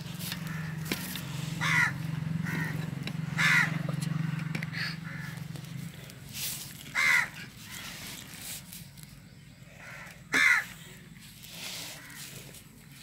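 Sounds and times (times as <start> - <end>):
crow cawing: 0.4 - 1.0, 1.6 - 5.5, 6.9 - 8.0, 9.7 - 10.8, 12.0 - 12.4.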